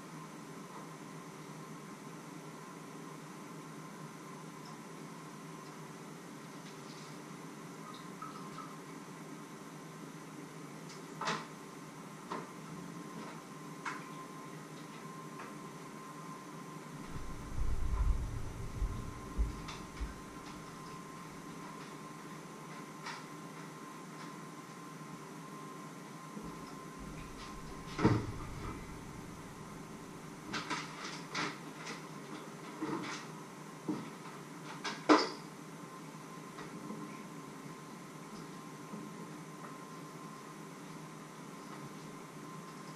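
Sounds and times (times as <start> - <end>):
loud knock: 27.9 - 29.2.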